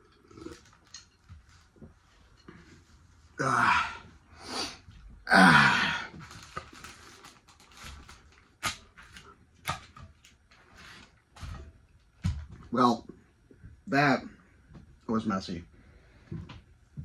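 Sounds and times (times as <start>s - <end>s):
man groaning exhale: 3.4s - 6.2s.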